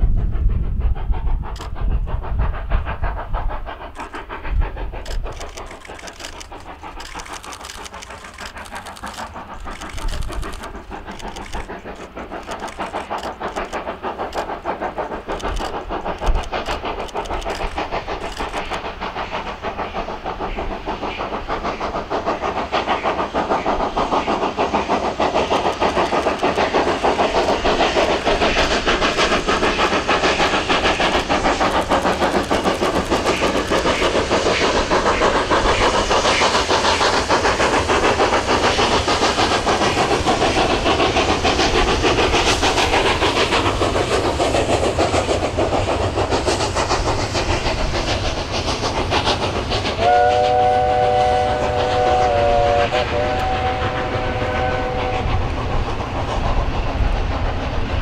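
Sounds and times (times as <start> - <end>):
steam locomotive exhaust beating: 0.0 - 58.0
train whistle chord: 50.0 - 55.3.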